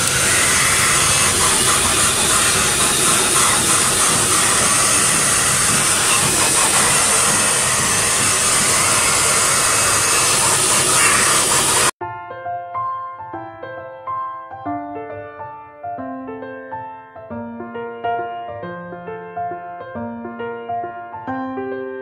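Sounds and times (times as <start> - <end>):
pet blow dryer rushing air: 0.0 - 12.0.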